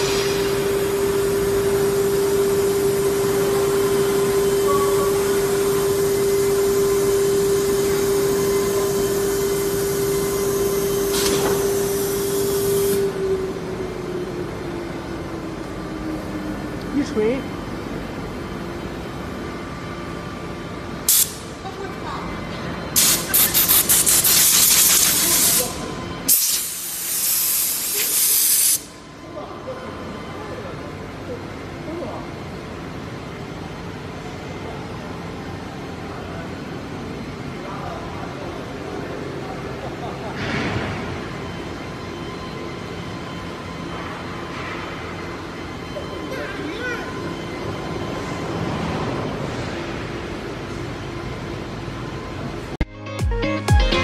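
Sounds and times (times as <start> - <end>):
cnc router running: 0.0 - 23.0, 25.2 - 26.4, 29.0 - 52.8
air blow gun hissing: 21.1 - 21.5, 23.0 - 28.9.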